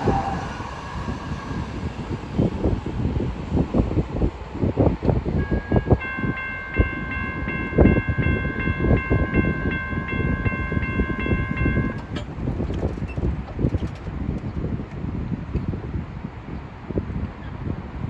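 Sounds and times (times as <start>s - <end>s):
gusty low rumble: 0.0s - 18.0s
crossing warning bell ringing: 5.4s - 13.0s.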